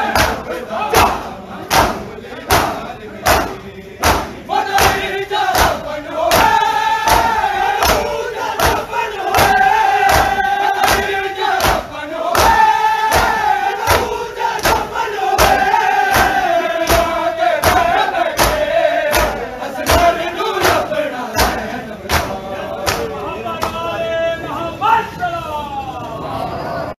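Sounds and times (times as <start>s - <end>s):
crowd of men chanting: 0.0s - 25.2s
chest slapping: 1.0s - 5.0s.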